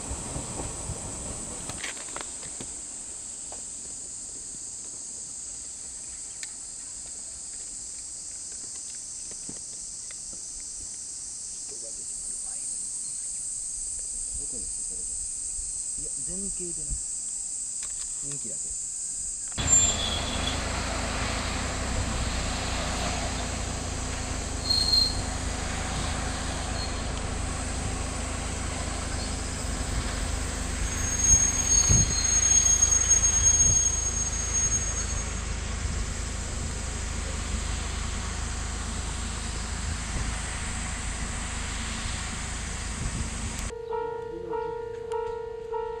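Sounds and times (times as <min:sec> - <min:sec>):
railcar low rumble: 0:00.0 - 0:08.2, 0:19.6 - 0:46.0
train wheels squealing: 0:19.6 - 0:20.6, 0:24.6 - 0:25.4, 0:26.4 - 0:27.2, 0:30.8 - 0:35.4.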